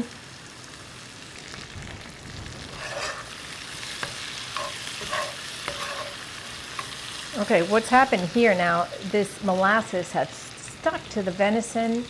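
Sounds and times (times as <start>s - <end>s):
meat sizzling: 0.0s - 12.0s
metal spoon scraping skillet: 2.6s - 7.3s.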